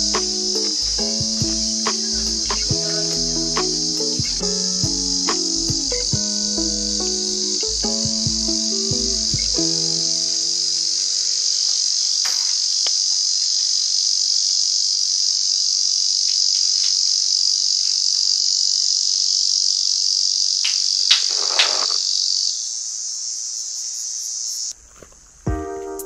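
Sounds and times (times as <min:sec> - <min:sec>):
high-pitched insect chorus: 0:00.0 - 0:24.8
brief rustle: 0:20.7 - 0:22.0.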